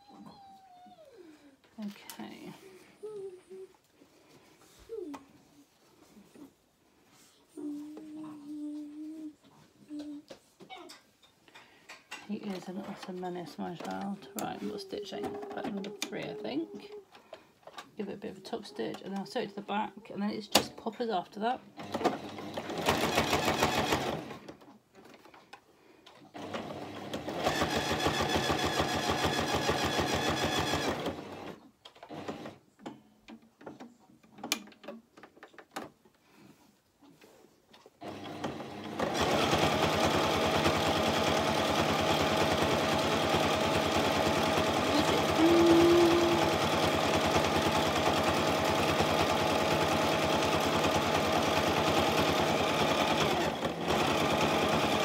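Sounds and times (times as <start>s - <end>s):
electric sewing machine stitching: 21.8s - 24.6s, 26.3s - 32.6s, 38.0s - 55.0s.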